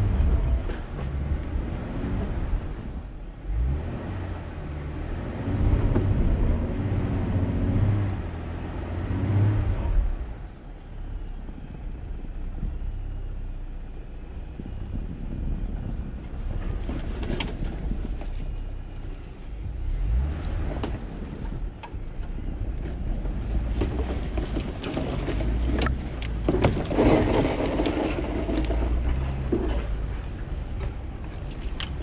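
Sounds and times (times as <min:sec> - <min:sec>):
engine and tyre rumble: 0:00.0 - 0:32.0
knocks and bumps: 0:22.2 - 0:32.0.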